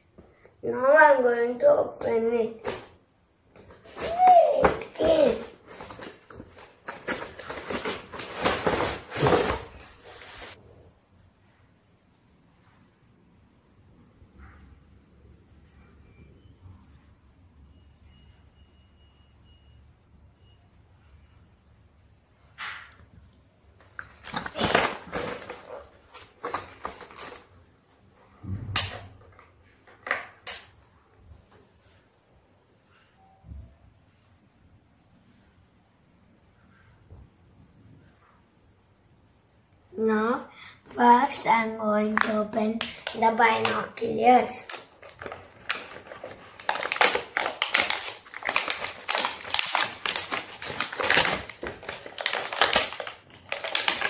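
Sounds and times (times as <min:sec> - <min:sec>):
plastic wrapping crinkling: 0:03.5 - 0:10.6, 0:23.8 - 0:28.2, 0:41.0 - 0:54.0.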